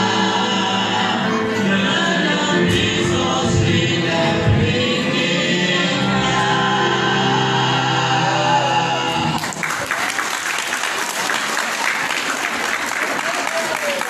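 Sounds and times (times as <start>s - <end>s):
vocal quartet singing a chord: 0.0s - 9.6s
audience applause: 9.2s - 14.0s.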